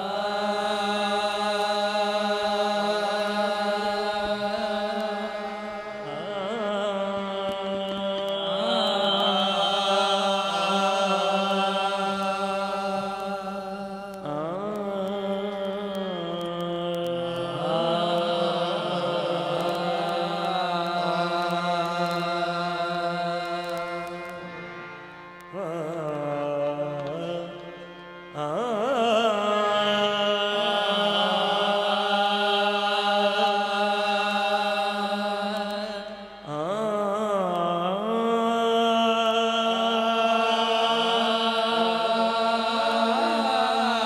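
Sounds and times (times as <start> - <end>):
person singing ornamented notes: 0.0 - 44.0
steady drone: 41.0 - 44.0.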